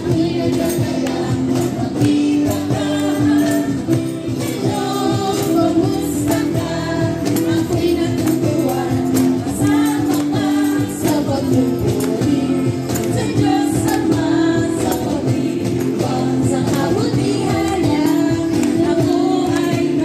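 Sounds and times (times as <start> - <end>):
acoustic guitar: 0.0 - 20.0
group singing along: 0.0 - 20.0
light percussive beat: 0.0 - 20.0
woman singing lead: 0.0 - 20.0.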